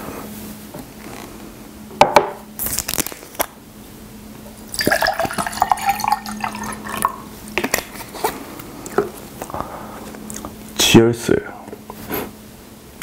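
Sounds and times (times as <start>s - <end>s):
water pouring into a glass: 4.7s - 7.3s.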